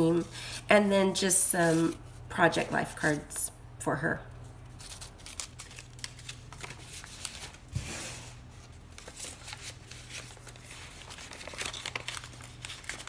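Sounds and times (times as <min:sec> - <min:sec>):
paper rustling: 0:04.7 - 0:07.9, 0:08.5 - 0:13.0.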